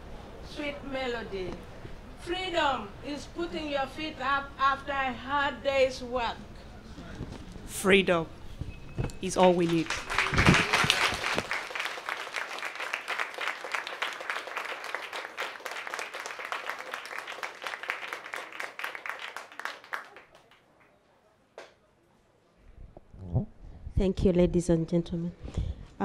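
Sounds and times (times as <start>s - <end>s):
audience applauding: 9.4s - 20.6s.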